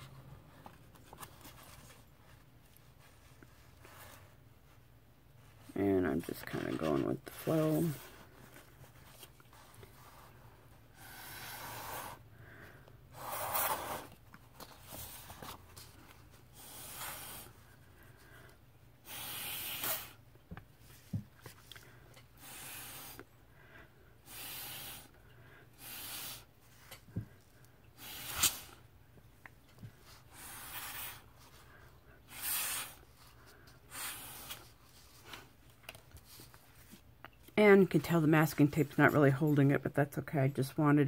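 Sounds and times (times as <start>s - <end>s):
puffs of air through a straw: 28.0s - 28.8s.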